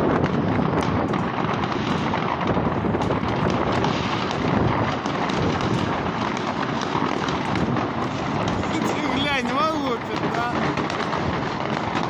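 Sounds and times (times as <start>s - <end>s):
fireworks banging and crackling: 0.0s - 12.0s.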